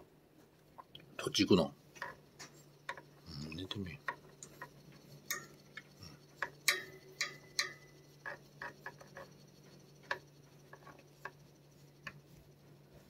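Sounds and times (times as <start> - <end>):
low steady hum: 0.0 - 13.0
back scratcher clicking and tapping: 4.0 - 12.5.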